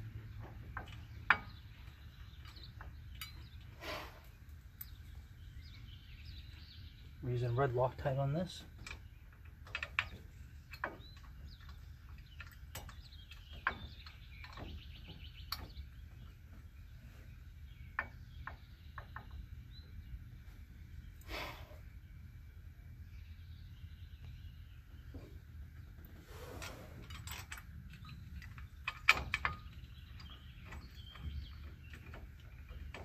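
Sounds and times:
low background hum: 0:00.0 - 0:33.0
metallic clicks of bolts: 0:08.8 - 0:14.7, 0:27.1 - 0:33.0
scraping rustle: 0:25.9 - 0:30.2.

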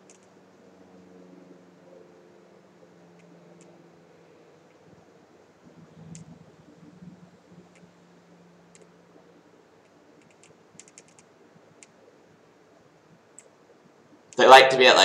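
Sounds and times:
computer keys clicking: 0:10.2 - 0:11.9.

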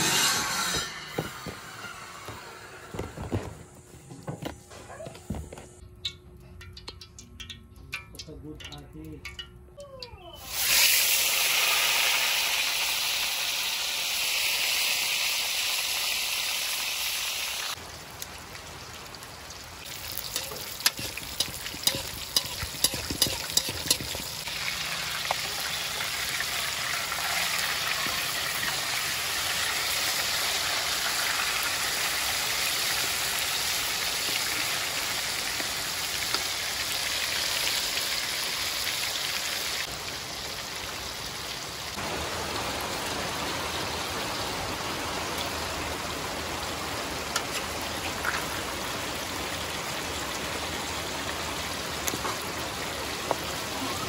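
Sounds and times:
metal spatula scraping a wok: 0:00.0 - 0:02.2, 0:20.3 - 0:24.5
fish sizzling in hot oil: 0:10.4 - 0:42.5.

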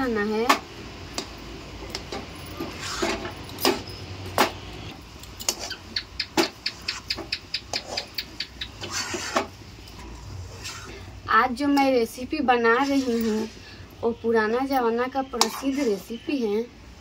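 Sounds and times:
metal spatula scraping metal pan: 0:08.8 - 0:09.5, 0:12.7 - 0:13.8, 0:15.2 - 0:16.3.

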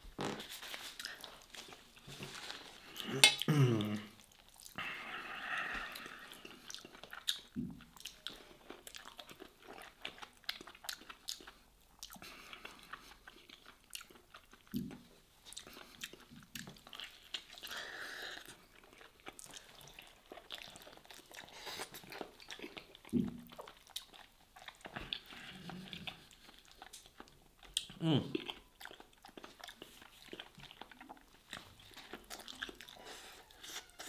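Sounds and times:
wet chewing and lip-smacking: 0:00.8 - 0:04.8, 0:05.8 - 0:34.0
person humming low: 0:03.0 - 0:04.1, 0:28.0 - 0:28.4.

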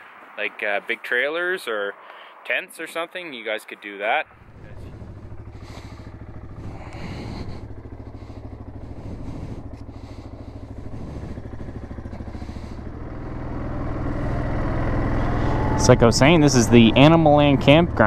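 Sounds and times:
atv engine running: 0:04.2 - 0:18.0.

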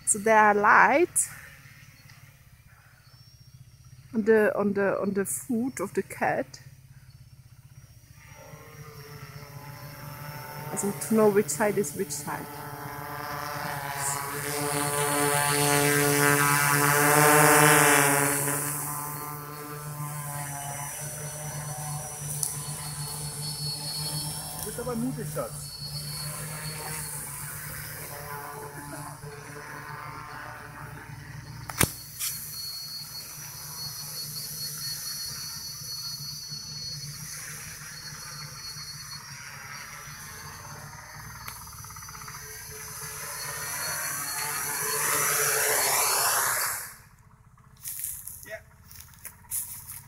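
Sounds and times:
high propeller whine: 0:00.0 - 0:50.0
quadcopter motors buzzing: 0:00.0 - 0:50.0.

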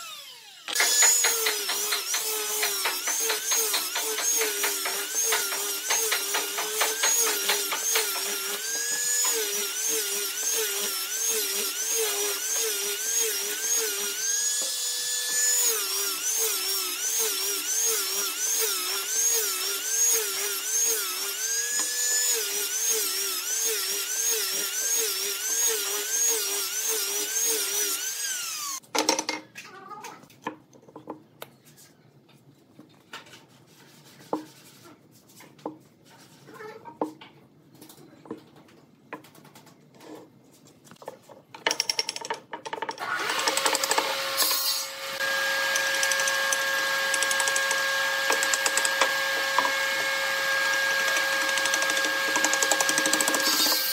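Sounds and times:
angle grinder sanding wood: 0:00.0 - 0:28.8, 0:44.1 - 0:53.9.

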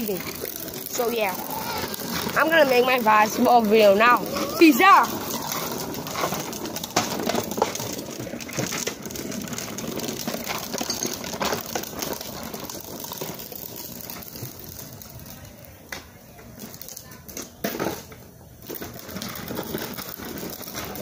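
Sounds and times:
rustles: 0:00.0 - 0:15.8.

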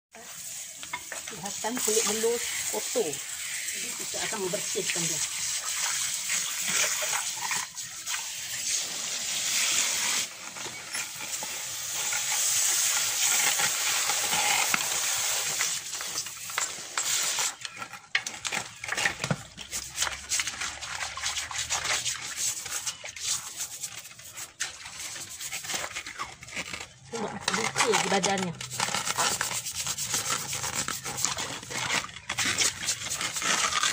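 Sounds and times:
water running from hose: 0:00.1 - 0:33.9
water splashing: 0:00.2 - 0:17.5
plastic brush scrubbing shell: 0:00.2 - 0:33.9.

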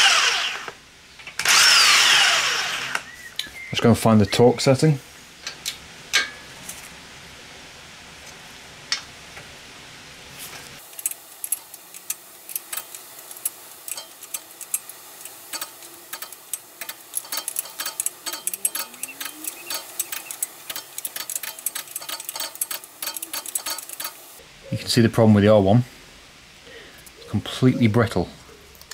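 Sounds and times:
torque wrench ratchet clicking: 0:10.9 - 0:24.3.

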